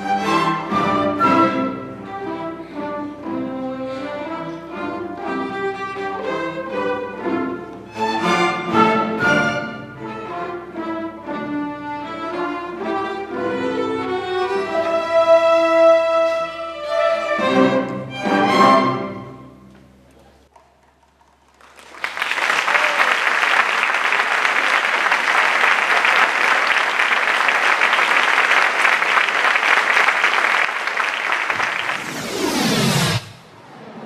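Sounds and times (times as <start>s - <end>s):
string orchestra chords: 0.0s - 19.8s
audience applause: 20.5s - 32.4s.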